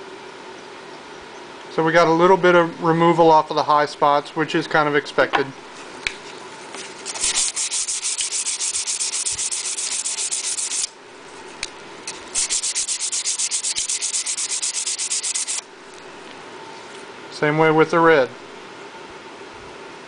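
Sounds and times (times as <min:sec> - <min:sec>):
sandpaper sanding wood: 0:07.1 - 0:10.9, 0:12.1 - 0:15.6.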